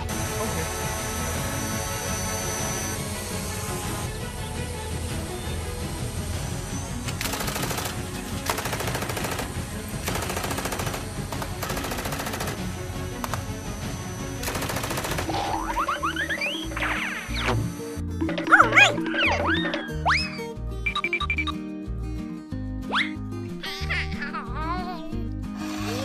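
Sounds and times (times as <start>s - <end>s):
cartoon background music: 0.0s - 21.8s, 22.7s - 26.0s
rapid rattling clatter: 7.1s - 13.6s.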